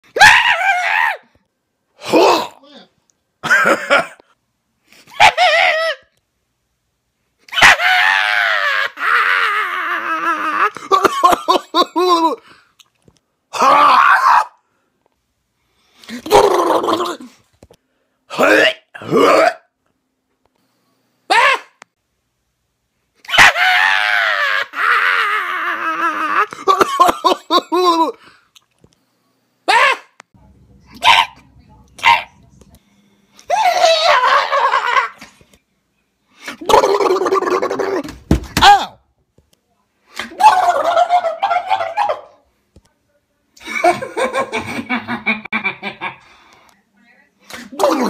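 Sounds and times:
man screaming: 0:00.1 - 0:01.3, 0:07.6 - 0:11.1, 0:13.6 - 0:14.6, 0:21.3 - 0:21.8, 0:23.3 - 0:26.8, 0:29.7 - 0:30.1, 0:36.6 - 0:39.0, 0:40.3 - 0:42.3
man laughing: 0:03.4 - 0:04.3, 0:09.8 - 0:12.5, 0:25.4 - 0:28.2, 0:43.6 - 0:46.2
man yelling and crying out: 0:21.3 - 0:21.7, 0:38.6 - 0:39.0.

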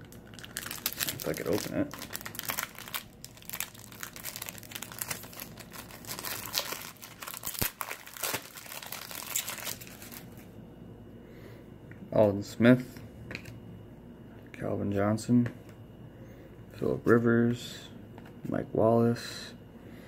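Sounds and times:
foil wrapper crinkling and tearing: 0:00.0 - 0:10.5.

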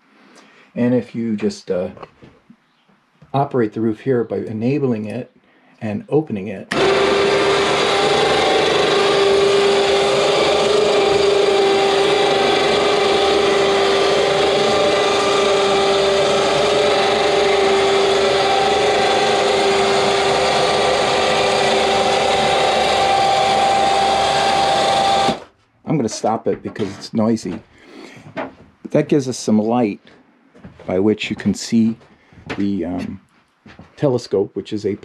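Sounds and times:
winch motor whine: 0:06.7 - 0:25.5.

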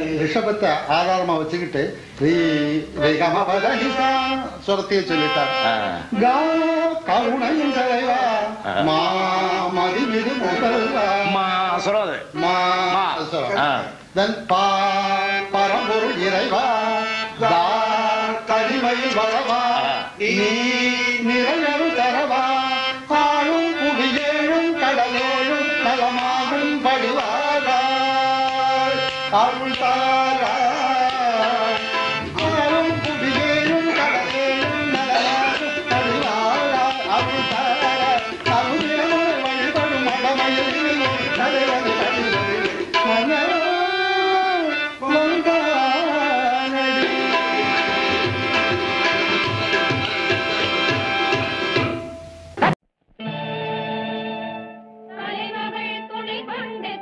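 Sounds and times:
man singing: 0:00.0 - 0:49.8
harmonium: 0:00.0 - 0:52.6
tabla: 0:14.2 - 0:52.7.

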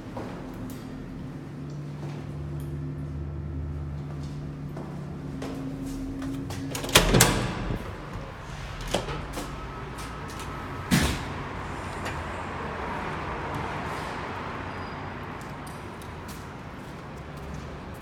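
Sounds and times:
city background noise: 0:00.0 - 0:18.0
door push bar clunk: 0:06.7 - 0:08.0
metal door banging shut: 0:06.7 - 0:09.4.

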